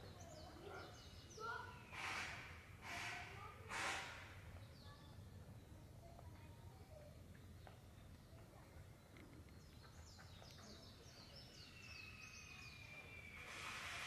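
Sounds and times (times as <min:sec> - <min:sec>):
bird chirping: 0:04.5 - 0:14.0.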